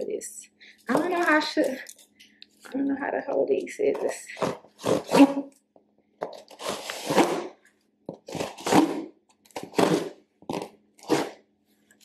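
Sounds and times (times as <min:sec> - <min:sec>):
scissors cutting packing tape: 0:08.2 - 0:11.4.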